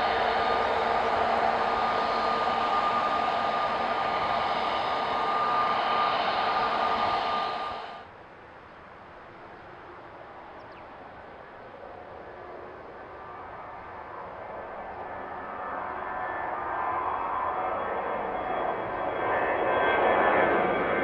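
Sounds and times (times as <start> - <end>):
distant jet rumble: 0.0 - 8.0
jet airliner landing: 0.0 - 8.0, 12.4 - 21.0.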